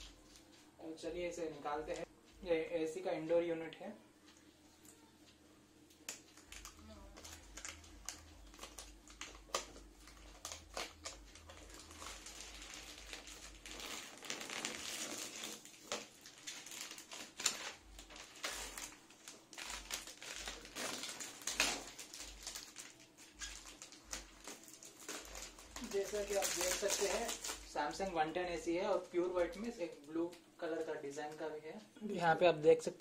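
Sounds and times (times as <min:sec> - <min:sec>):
plastic film crinkling and crackling: 0:05.9 - 0:31.6.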